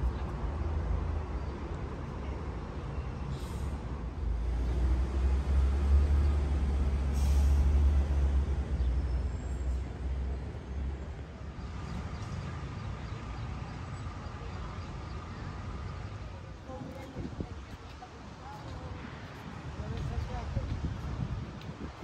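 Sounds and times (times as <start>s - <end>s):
heavy vehicle engine rumble: 0.0s - 22.0s
short hiss: 7.2s - 7.8s.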